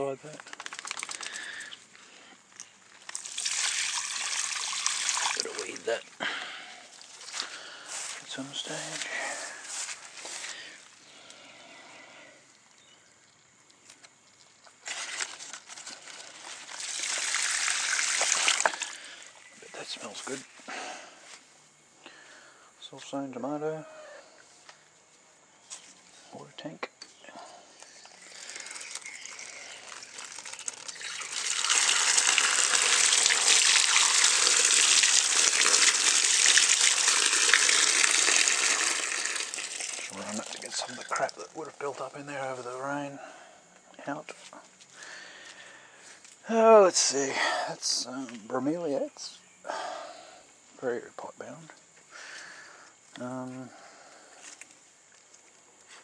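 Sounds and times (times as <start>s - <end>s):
water trickling and splashing: 2.9s - 6.0s, 12.6s - 20.4s, 28.1s - 42.2s.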